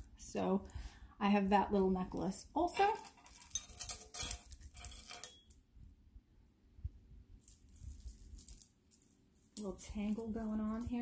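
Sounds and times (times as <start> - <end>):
jewelry clinking: 2.8 - 5.6, 7.4 - 11.0.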